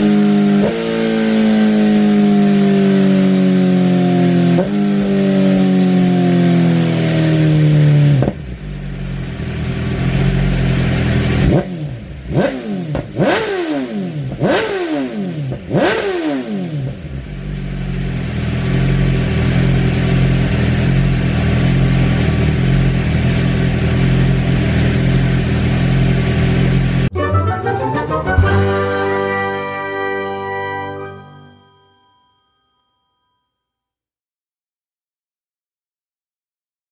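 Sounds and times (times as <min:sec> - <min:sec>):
motorcycle engine revving: 0:00.0 - 0:27.1.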